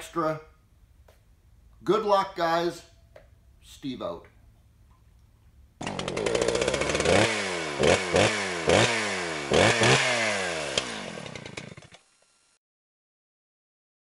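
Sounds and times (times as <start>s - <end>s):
chainsaw engine revving: 5.8s - 12.6s.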